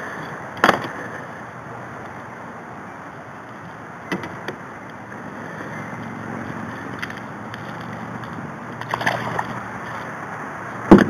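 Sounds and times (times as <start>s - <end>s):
water lapping around kayak hull: 8.8s - 10.0s.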